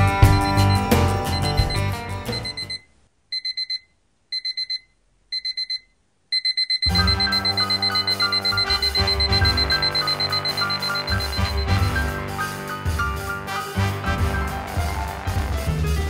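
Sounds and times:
background music: 0.0 - 2.8, 6.9 - 16.0
digital alarm beeping: 0.2 - 2.8, 3.4 - 12.5.

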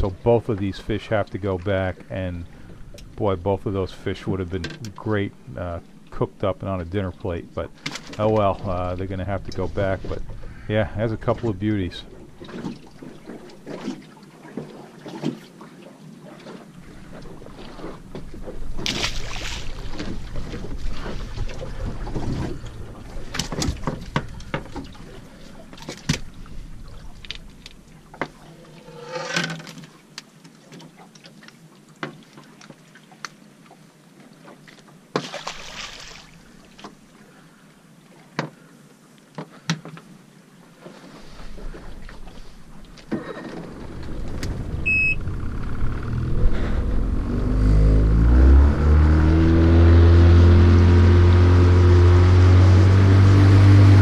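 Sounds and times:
boat motor revving: 43.5 - 54.0.

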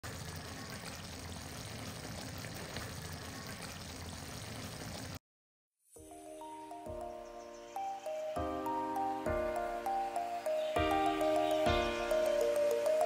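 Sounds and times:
curry sizzling in a pot: 0.0 - 5.2
background music: 6.0 - 13.0.

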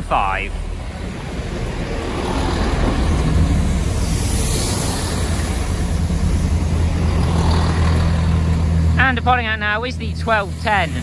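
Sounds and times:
diesel engine drone: 0.0 - 11.0
train wheels rumbling on rails: 0.0 - 11.0.

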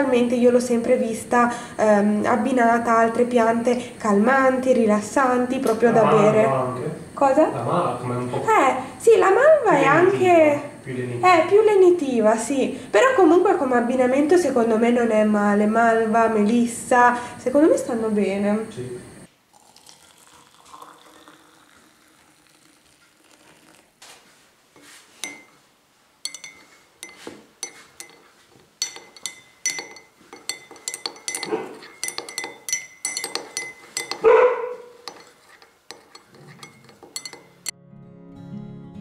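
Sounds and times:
teaspoon clinking in mugs: 25.2 - 25.6, 26.2 - 37.7
acoustic guitar music: 36.4 - 39.0.

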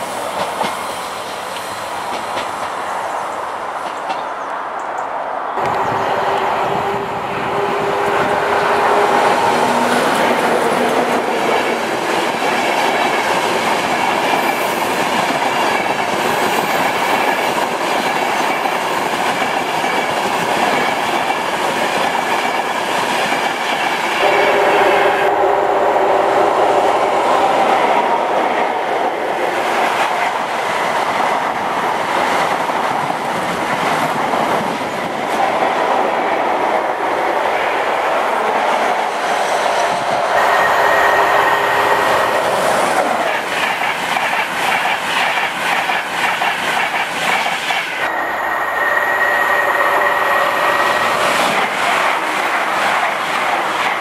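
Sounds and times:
train wheels rushing on rail: 0.0 - 54.0
clickety-clack over rail joints: 0.3 - 0.9, 1.5 - 2.8, 3.7 - 5.0, 9.8 - 24.2, 42.6 - 48.1, 51.2 - 54.0.

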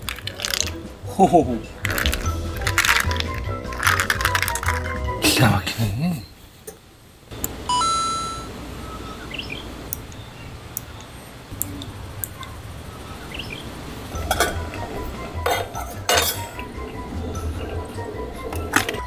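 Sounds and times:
outdoor background noise: 0.0 - 19.0
short beep: 7.7 - 9.2
metal tableware clinking: 14.2 - 14.6, 15.4 - 16.6.

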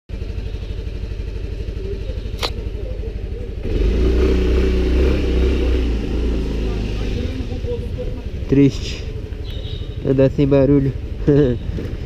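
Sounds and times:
scooter engine idling and revving: 0.1 - 12.0
sharp click: 2.3 - 2.6.

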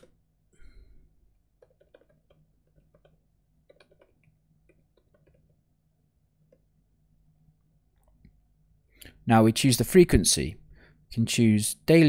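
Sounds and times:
keyboard typing: 1.6 - 5.6.

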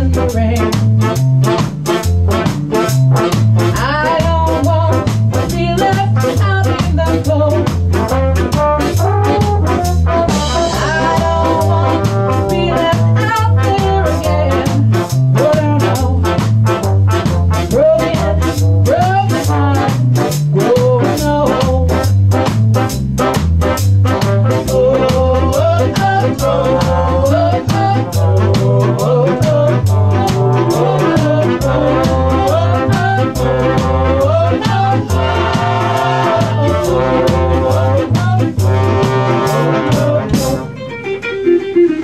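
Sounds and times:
ska band playing: 0.0 - 42.0.

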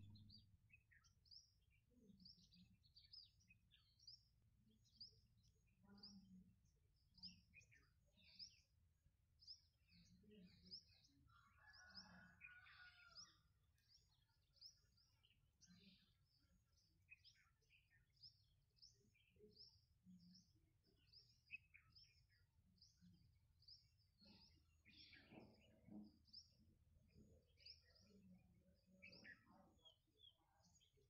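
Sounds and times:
birds chirping: 0.0 - 6.3.

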